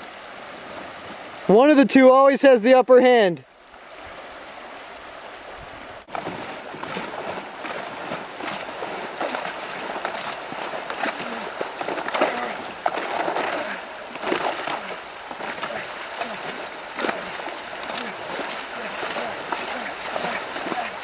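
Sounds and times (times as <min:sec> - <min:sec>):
paddle blades splashing: 0:00.0 - 0:21.0
water rushing over riffle: 0:06.0 - 0:21.0.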